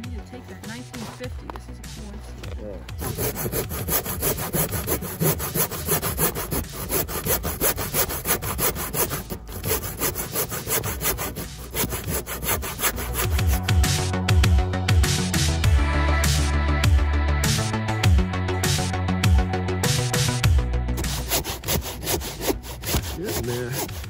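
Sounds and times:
rasping sawing strokes: 3.0 - 13.8, 21.0 - 24.0.

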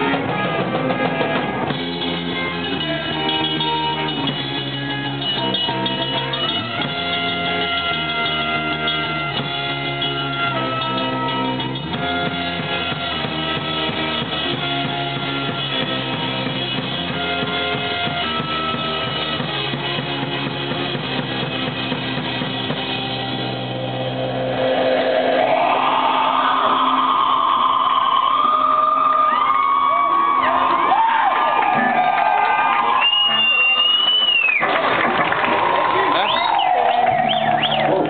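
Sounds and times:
drum kit beat: 0.0 - 23.9
electric guitar: 0.0 - 31.0.

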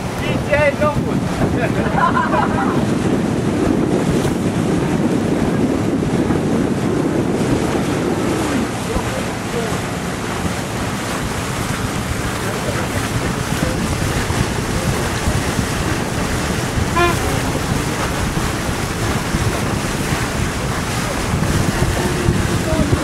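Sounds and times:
sea water rushing past hull: 0.0 - 23.0
wind buffeting microphone: 0.0 - 23.0
short tone: 17.0 - 17.5.

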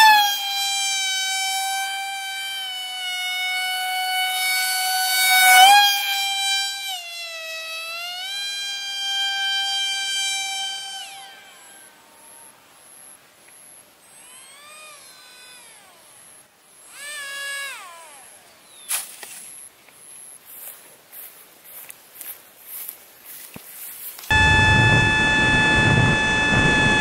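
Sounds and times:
model airplane motor whining: 0.0 - 12.6, 14.1 - 18.8, 24.3 - 27.0.

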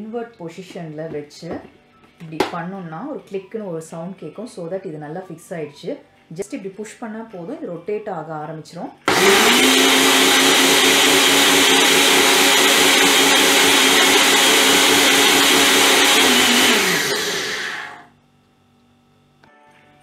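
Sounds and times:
blender motor running: 9.1 - 18.1.

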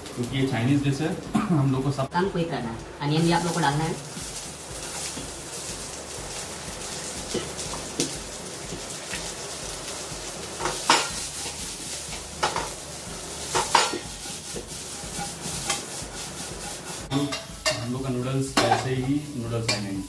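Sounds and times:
vegetables sizzling in oil: 0.0 - 20.0
metal pan clanks: 18.6 - 19.9.

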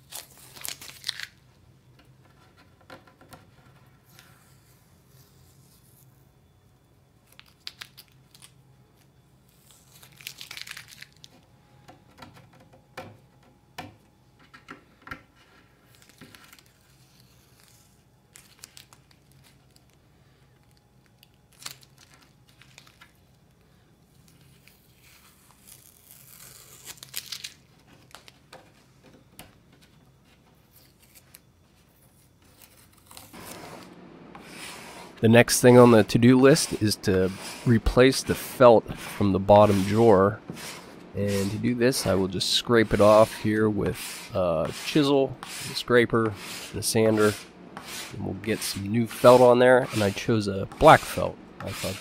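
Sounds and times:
tape crumpling rustles: 0.0 - 1.4, 7.2 - 11.5, 15.8 - 20.0, 20.6 - 23.5, 24.1 - 29.0
tape ripping off wood: 25.4 - 28.3.

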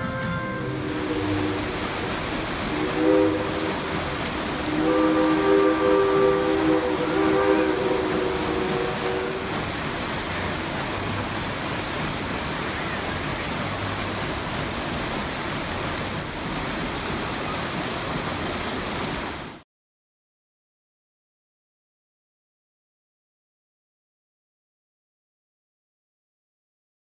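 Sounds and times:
steam locomotive whistle: 0.0 - 9.8
creek rapids rushing: 0.5 - 19.6.

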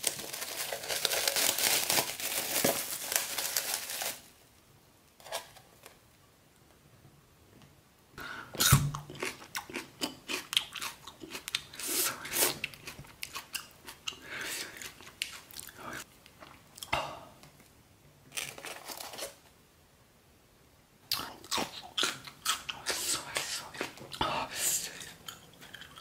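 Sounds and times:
plastic cling film crinkling: 0.0 - 4.4, 18.3 - 19.4.

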